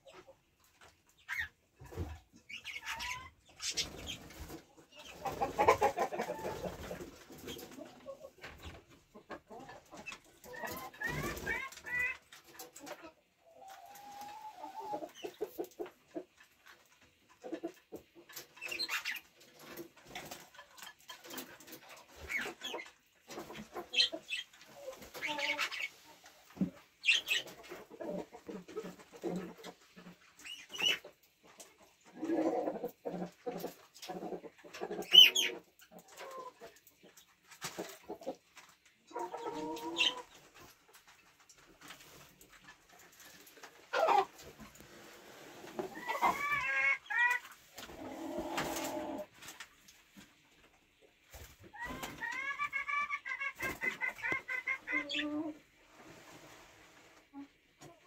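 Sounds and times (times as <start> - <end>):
hens clucking: 0.0 - 58.0
budgerigars chirping: 27.0 - 27.4.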